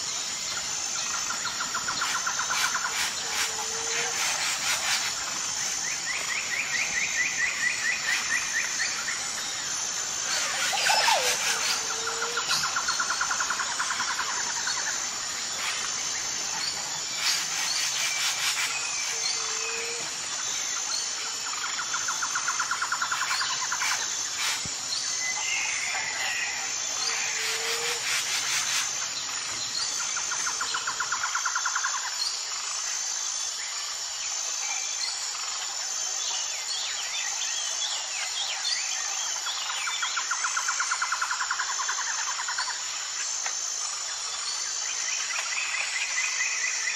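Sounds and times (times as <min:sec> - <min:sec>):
insects chirping: 0:00.0 - 0:46.9
birds calling: 0:10.2 - 0:13.3.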